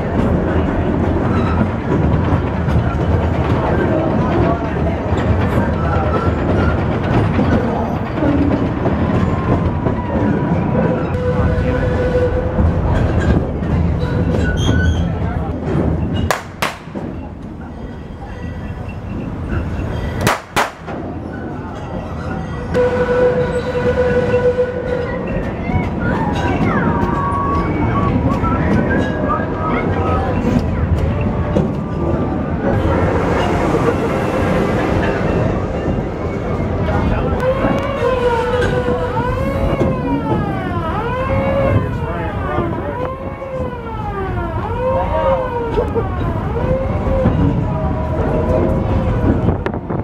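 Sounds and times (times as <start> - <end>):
train rumbling on track: 0.0 - 50.0
wheels clacking on rail joints: 0.0 - 50.0
siren wailing: 39.0 - 47.4.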